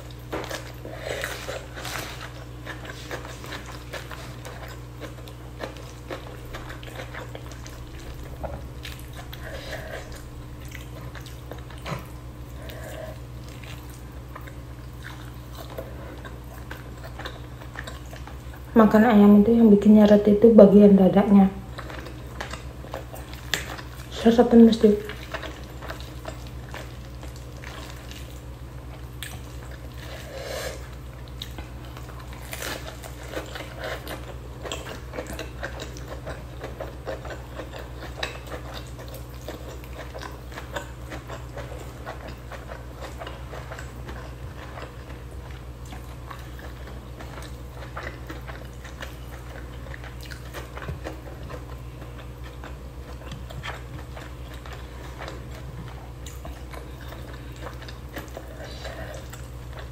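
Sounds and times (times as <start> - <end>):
person chewing food: 0.0 - 18.7, 21.6 - 24.2, 24.8 - 59.9
steady low hum: 0.0 - 59.9.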